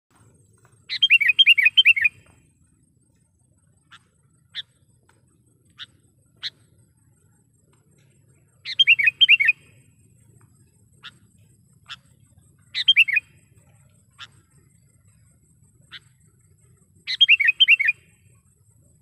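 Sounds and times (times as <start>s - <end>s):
bird calling: 0.6s - 2.4s, 3.7s - 5.1s, 8.0s - 9.8s, 10.6s - 15.2s, 15.8s - 18.2s.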